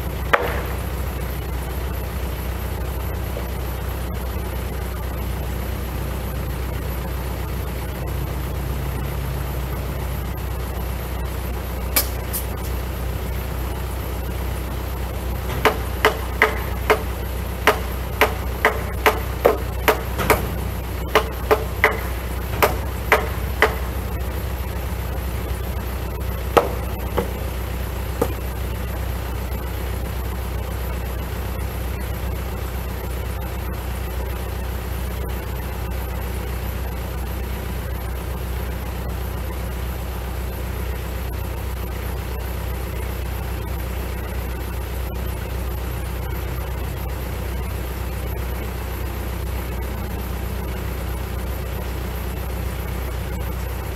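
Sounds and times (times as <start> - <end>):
diesel tractor idling: 0.0 - 53.9
hammer striking timber joint: 0.3 - 0.9, 15.5 - 24.2, 26.6 - 27.6, 28.2 - 28.5.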